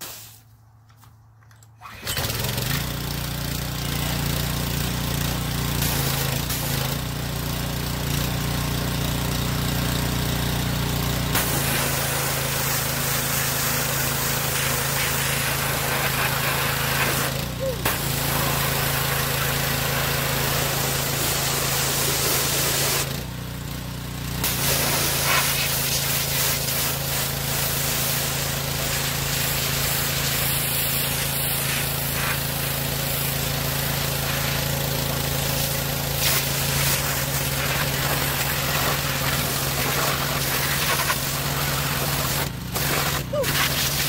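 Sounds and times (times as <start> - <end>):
high-pressure spray hissing on metal: 0.0 - 0.5, 11.4 - 23.1, 24.4 - 34.6, 35.6 - 44.0
pressure washer engine running: 1.9 - 44.0.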